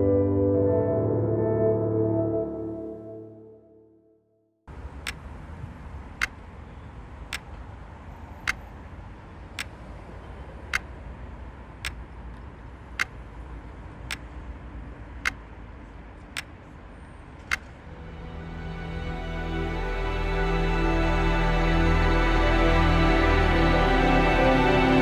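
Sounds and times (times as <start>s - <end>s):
low steady rumble: 17.7s - 25.0s.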